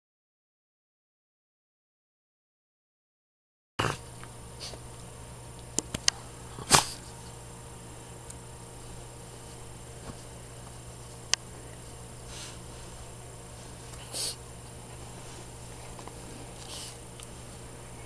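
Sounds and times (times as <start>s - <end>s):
steady low hum: 3.8s - 18.0s
small dog stirring: 5.8s - 7.4s, 8.9s - 18.0s
dog breathy burst: 6.4s - 7.1s, 12.2s - 12.9s, 14.0s - 14.4s, 16.4s - 17.1s.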